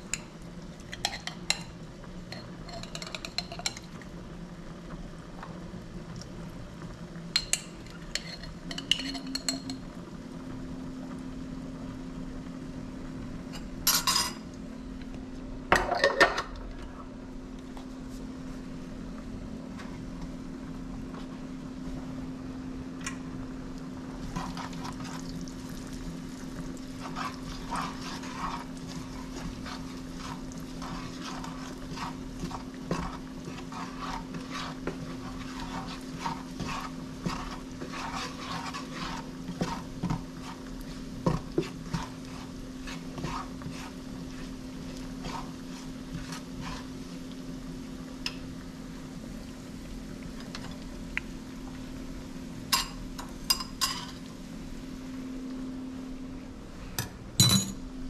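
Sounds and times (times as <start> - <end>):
utensil scraping in a pot: 0.9 - 1.7, 2.3 - 3.9, 7.4 - 9.8, 24.2 - 47.6.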